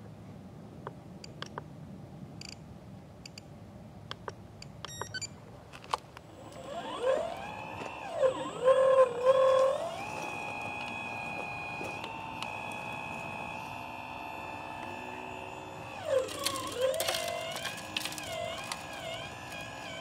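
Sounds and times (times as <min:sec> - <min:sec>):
motor whine: 0:06.3 - 0:20.0.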